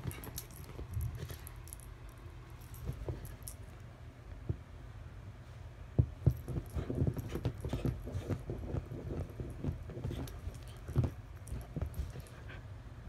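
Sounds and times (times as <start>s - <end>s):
puppy pawing at blankets: 6.0s - 12.6s.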